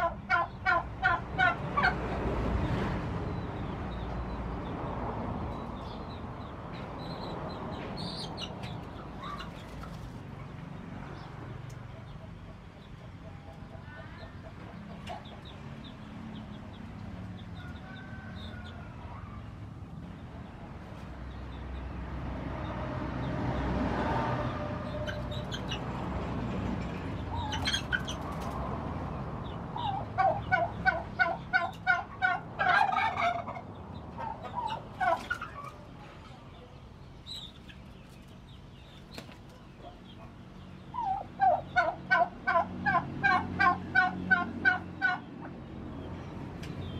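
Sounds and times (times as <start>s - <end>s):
turkey gobbling: 0.0s - 2.0s, 27.3s - 28.4s, 29.8s - 35.8s, 40.9s - 45.3s.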